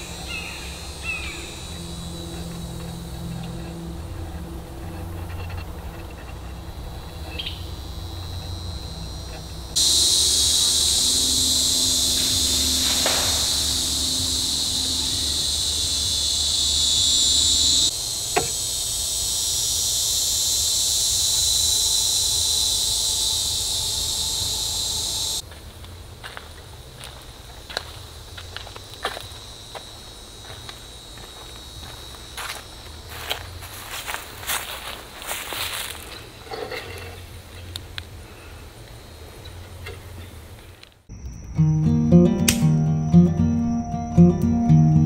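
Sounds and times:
high-pitched insect chorus: 0:00.0 - 0:40.4, 0:41.1 - 0:45.0
sharp bang: 0:09.8 - 0:15.2
footsteps through brush: 0:25.4 - 0:36.5.

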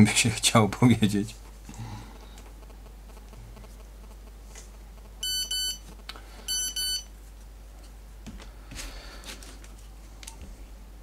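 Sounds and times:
electronic double beeps: 0:05.2 - 0:05.8, 0:06.5 - 0:07.1.

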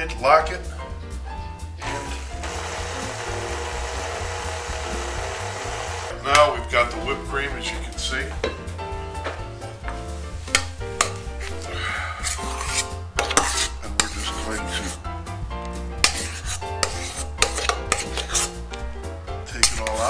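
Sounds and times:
background music with bass line: 0:00.0 - 0:20.0
dishes and utensils clinking: 0:12.2 - 0:15.0, 0:16.0 - 0:18.8.

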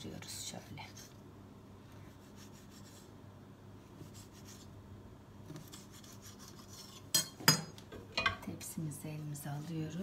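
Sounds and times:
knife slicing through dough: 0:05.4 - 0:07.2.

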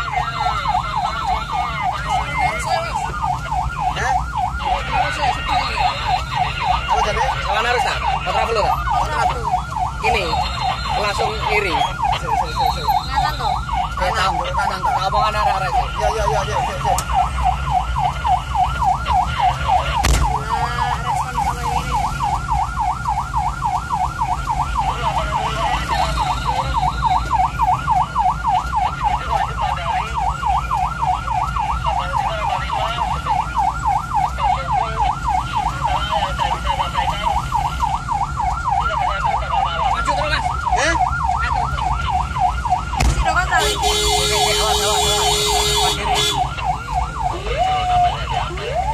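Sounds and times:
ambulance siren yelping: 0:00.0 - 0:48.9
thump: 0:20.0 - 0:20.3.

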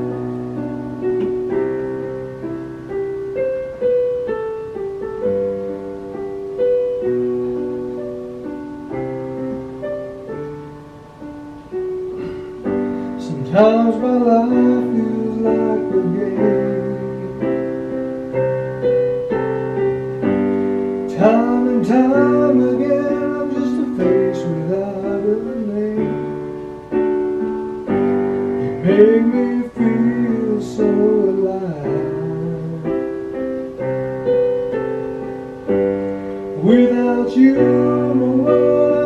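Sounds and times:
electronic keyboard chords: 0:00.0 - 0:39.0
person singing: 0:12.2 - 0:18.0, 0:21.1 - 0:26.6, 0:28.5 - 0:33.6, 0:36.4 - 0:39.0.

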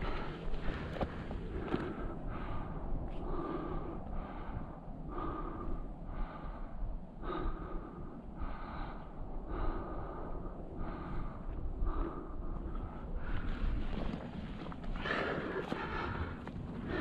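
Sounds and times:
person breathing hard: 0:00.0 - 0:13.9, 0:14.9 - 0:17.0
steady low rumble: 0:00.0 - 0:17.0.

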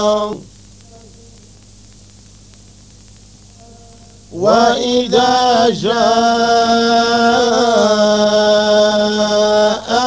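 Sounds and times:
man reciting melodically: 0:00.0 - 0:00.5, 0:03.8 - 0:10.0
faint hum: 0:00.0 - 0:10.0.

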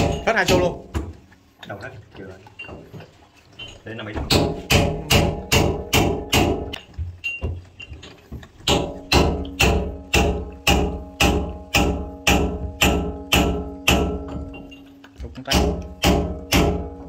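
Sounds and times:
hammer striking metal: 0:00.0 - 0:01.1, 0:04.3 - 0:06.8, 0:08.6 - 0:17.0.

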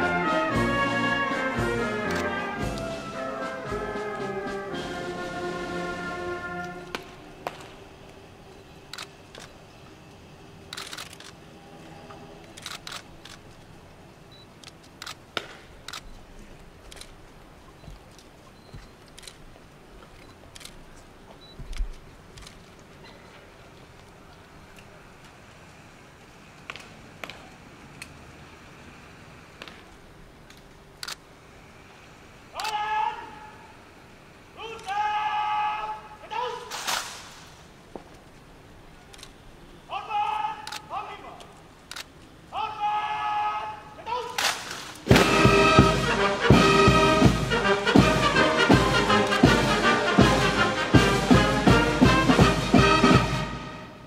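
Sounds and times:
faint outdoor hiss: 0:00.0 - 0:54.0
camera shutters clicking: 0:02.0 - 0:02.3, 0:08.9 - 0:09.6, 0:10.7 - 0:11.4, 0:12.4 - 0:13.5, 0:14.6 - 0:16.2, 0:16.9 - 0:17.2, 0:19.0 - 0:19.4, 0:20.2 - 0:20.8, 0:30.5 - 0:31.3, 0:32.6 - 0:32.8, 0:39.1 - 0:39.4, 0:40.6 - 0:40.9, 0:41.8 - 0:42.3.

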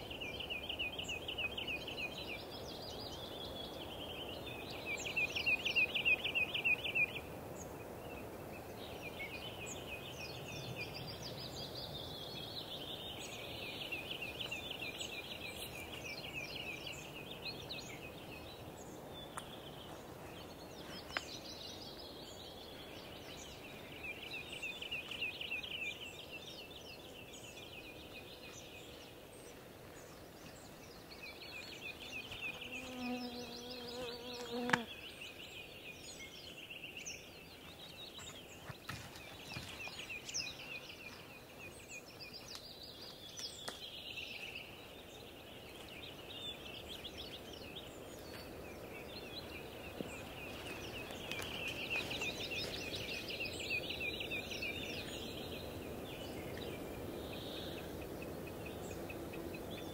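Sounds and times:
forest background: 0:00.0 - 0:59.9
songbirds singing falling trills: 0:00.0 - 0:59.9
insect buzzing: 0:32.6 - 0:34.9.

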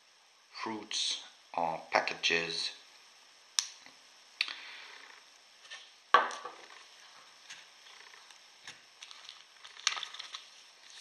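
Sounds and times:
small items rattling in a tin: 0:09.0 - 0:11.0.

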